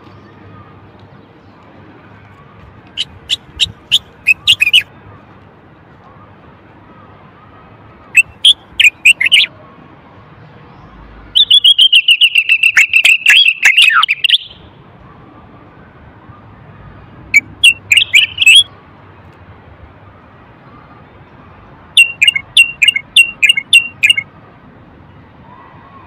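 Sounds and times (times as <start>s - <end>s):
bird singing whistled notes: 3.0s - 4.9s, 8.2s - 9.5s, 11.4s - 14.6s, 17.4s - 18.7s, 22.0s - 24.2s.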